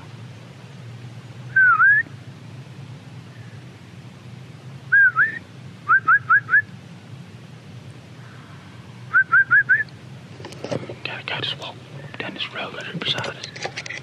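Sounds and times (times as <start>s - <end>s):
person whistling loudly: 1.6s - 2.1s, 4.9s - 6.7s, 9.1s - 9.9s.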